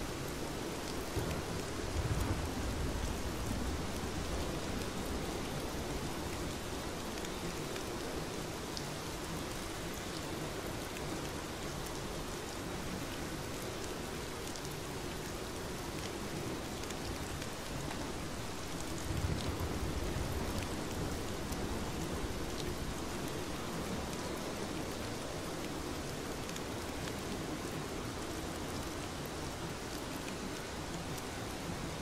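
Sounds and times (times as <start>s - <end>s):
steady rain falling: 0.0s - 32.0s.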